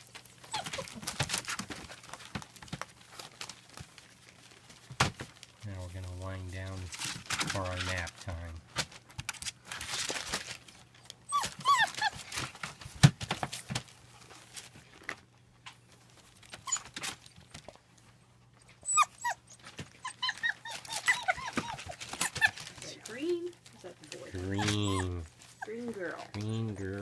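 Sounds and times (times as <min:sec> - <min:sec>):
puppies whining and yipping: 0:00.3 - 0:01.2, 0:11.2 - 0:12.5, 0:16.4 - 0:17.2, 0:18.6 - 0:22.9, 0:24.2 - 0:26.0.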